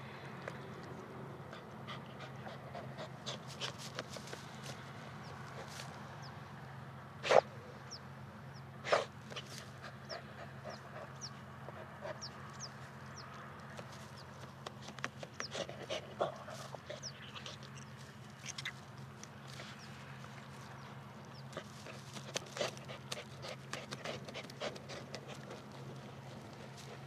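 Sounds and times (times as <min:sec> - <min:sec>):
steady low hum: 0:00.0 - 0:27.0
dog panting: 0:01.5 - 0:04.4, 0:08.9 - 0:12.7, 0:14.6 - 0:17.7, 0:21.4 - 0:27.0.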